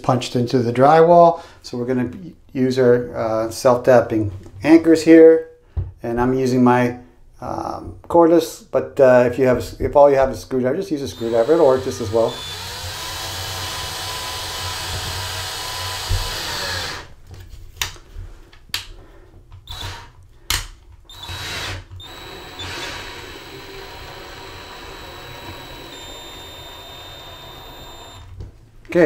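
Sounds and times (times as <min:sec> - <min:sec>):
cordless screwdriver motor whine: 0:11.2 - 0:14.4, 0:21.1 - 0:28.3.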